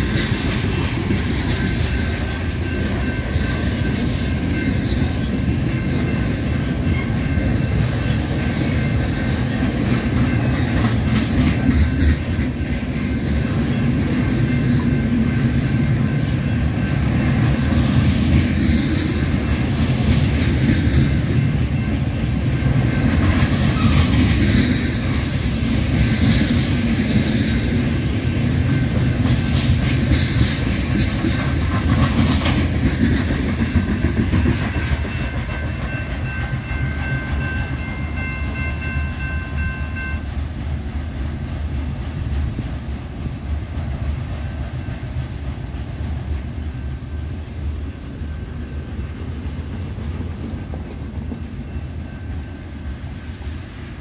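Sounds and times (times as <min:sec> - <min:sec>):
wheels clacking over rails: 0:00.0 - 0:40.2
freight train rumbling: 0:00.0 - 0:54.0.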